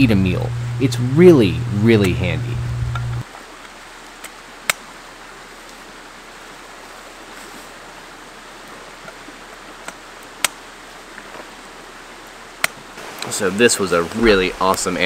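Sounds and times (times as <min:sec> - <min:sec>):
creek running: 0:03.2 - 0:15.0.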